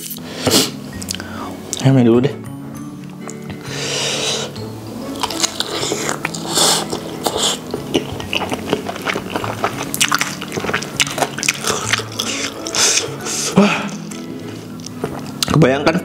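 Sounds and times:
chewing with wet mouth clicks: 1.0s - 1.8s, 5.1s - 15.6s.

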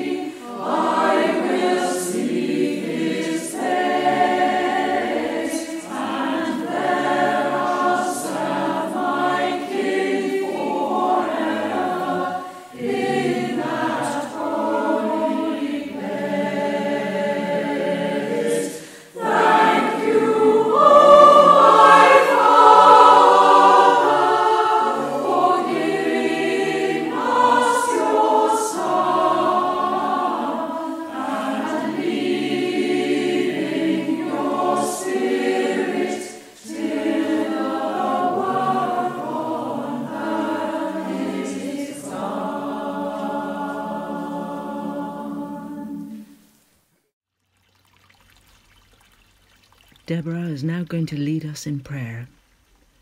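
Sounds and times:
choir singing: 0.0s - 46.5s.

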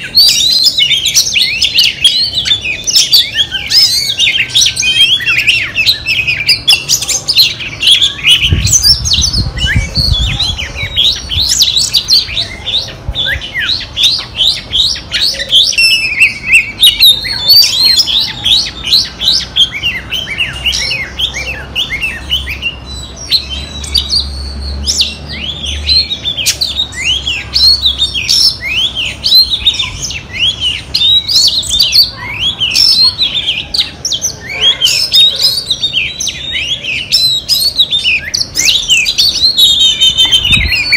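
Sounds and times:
bird singing whistled notes: 0.0s - 40.9s.

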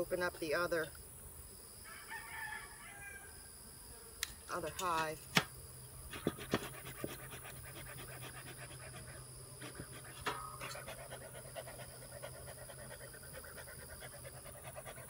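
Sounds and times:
bellows puffing air: 6.1s - 15.0s.

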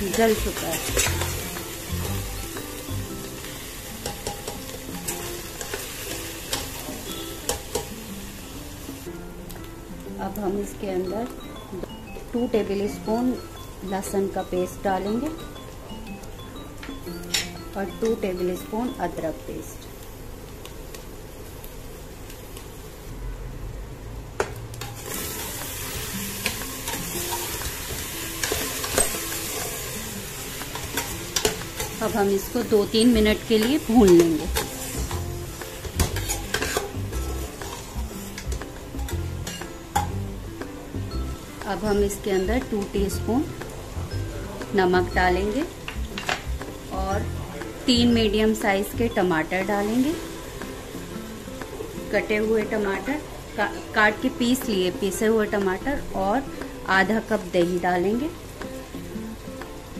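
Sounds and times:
meat sizzling in a pot: 0.0s - 23.1s, 24.5s - 59.9s
metal spatula scraping pot: 36.0s - 38.0s.

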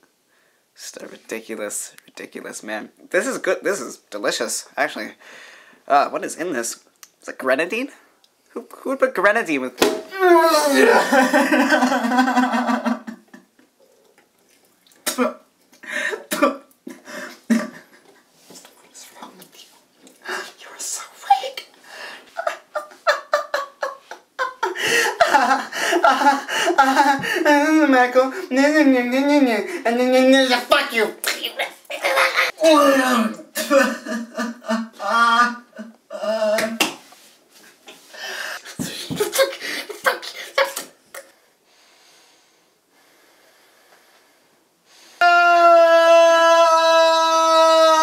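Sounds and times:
young man crying: 10.1s - 13.2s, 22.4s - 31.0s, 31.8s - 36.8s, 38.6s - 40.9s, 45.2s - 48.0s
person retching and gasping: 14.9s - 17.8s.

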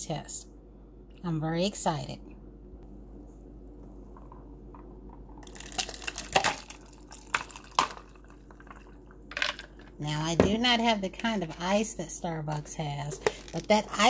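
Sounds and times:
drink with ice pouring: 5.3s - 9.9s.

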